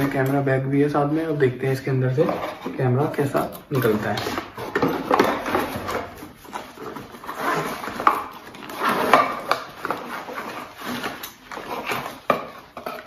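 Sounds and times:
bag scraping on cardboard: 0:03.7 - 0:13.0.

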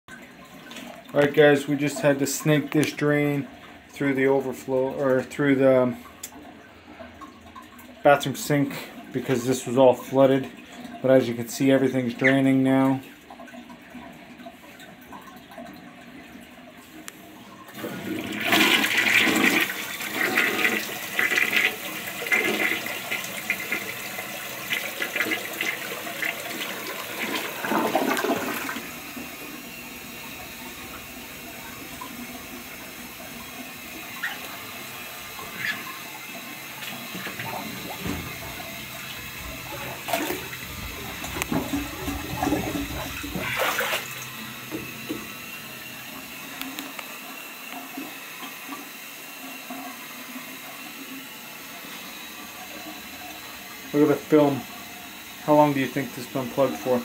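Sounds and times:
toilet flushing: 0:00.1 - 0:57.0
water sloshing in a tub: 0:00.1 - 0:57.0
toilet tank refilling hiss: 0:16.0 - 0:57.0.

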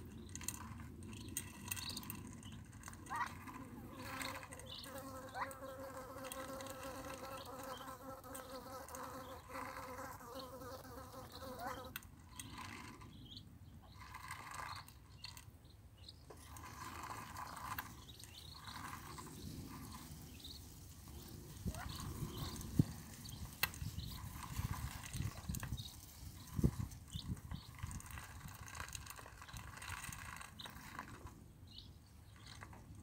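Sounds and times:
flying insect buzzing: 0:03.1 - 0:12.0.

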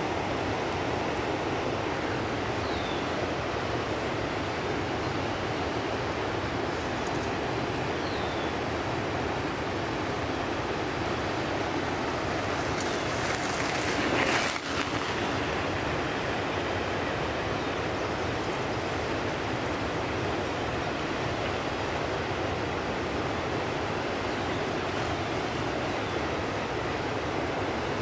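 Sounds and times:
river rushing over rocks: 0:00.0 - 0:28.0.

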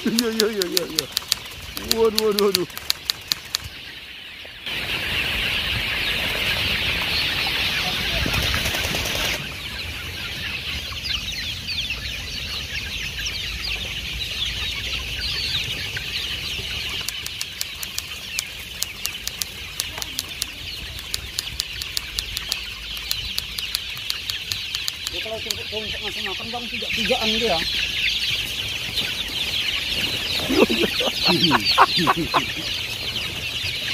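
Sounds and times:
sharp clicks: 0:00.0 - 0:03.7, 0:17.0 - 0:25.6, 0:30.6 - 0:32.5
chicks peeping and chirping: 0:00.0 - 0:33.9.

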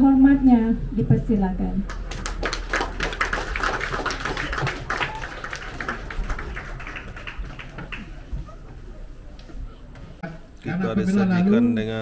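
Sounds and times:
audience clapping: 0:01.9 - 0:08.4.

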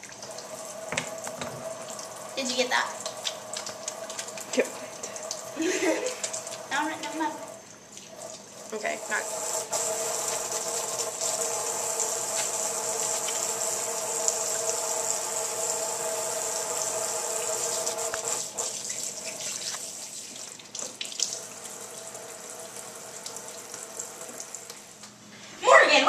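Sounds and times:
faucet running into steel sink: 0:00.0 - 0:24.9
small clicks and splashes: 0:03.0 - 0:05.4
hands washing under water: 0:03.0 - 0:06.9, 0:07.8 - 0:14.8, 0:16.4 - 0:24.9.

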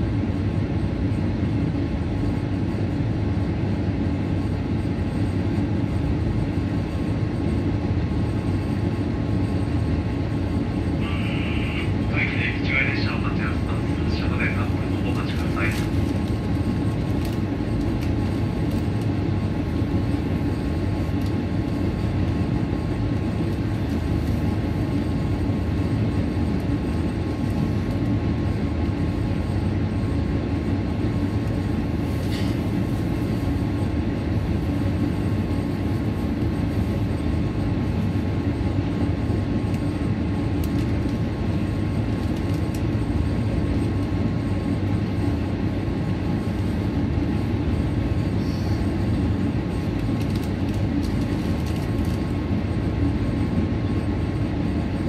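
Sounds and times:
diesel railcar engine idling: 0:10.8 - 0:17.8.

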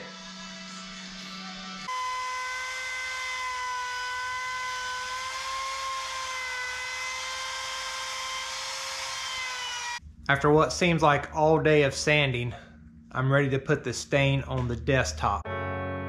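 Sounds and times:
router motor whine: 0:00.0 - 0:10.0.

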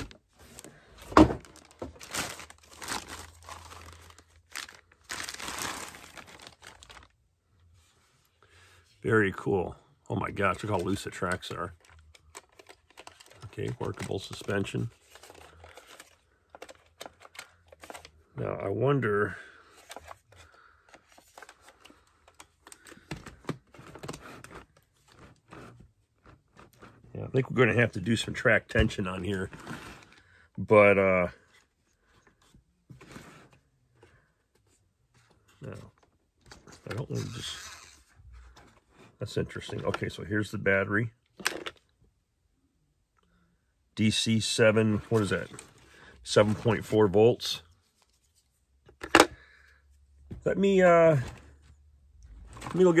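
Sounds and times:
packaging crinkling and tearing: 0:01.4 - 0:07.1, 0:10.7 - 0:18.1.

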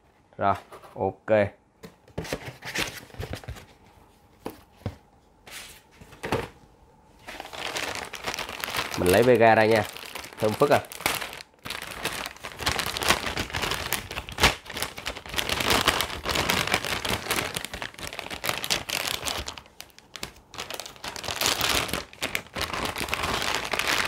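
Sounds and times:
metallic bag crinkling: 0:07.2 - 0:24.0.

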